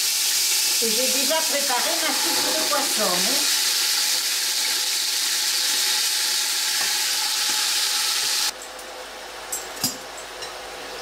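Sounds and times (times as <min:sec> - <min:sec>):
squid sizzling in hot oil: 0:00.0 - 0:08.5.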